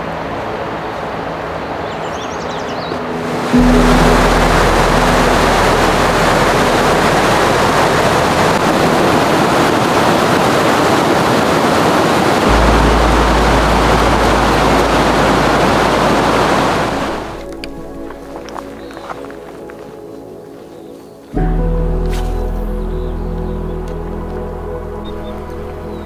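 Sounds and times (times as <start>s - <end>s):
creek rushing over rocks: 3.0s - 19.8s.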